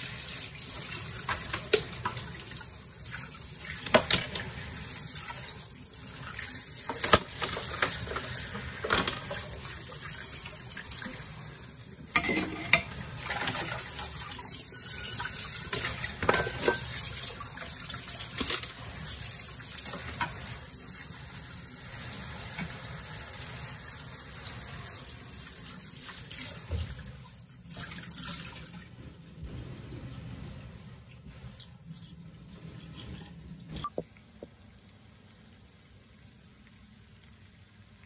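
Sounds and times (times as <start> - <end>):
tap water running into sink: 0.0 - 11.4, 21.9 - 28.9, 33.0 - 34.6.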